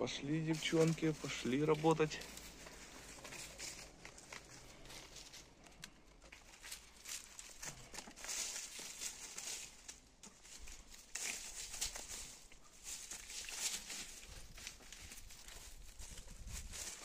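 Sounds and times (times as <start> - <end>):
hens rustling through grass: 0.0 - 17.0
hens scratching at soil: 0.0 - 17.0.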